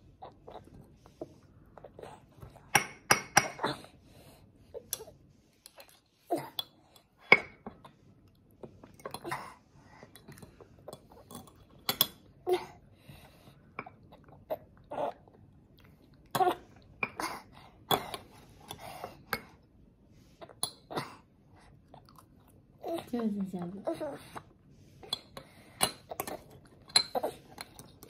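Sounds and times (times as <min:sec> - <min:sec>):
child throat and mouth sounds: 0:13.6 - 0:19.6, 0:20.4 - 0:23.1, 0:23.8 - 0:28.0.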